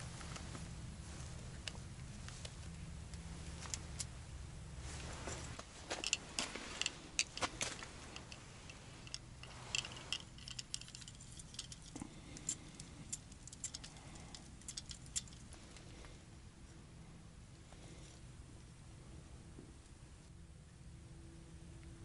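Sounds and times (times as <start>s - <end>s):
fishing rod and reel clicks: 8.2s - 12.6s.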